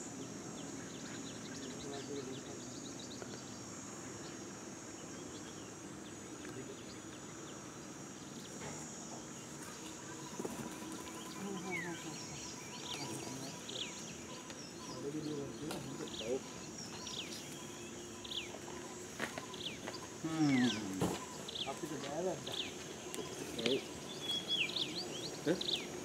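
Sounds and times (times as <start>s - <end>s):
high-pitched insect drone: 0.0s - 26.0s
bird chirps: 8.2s - 26.0s.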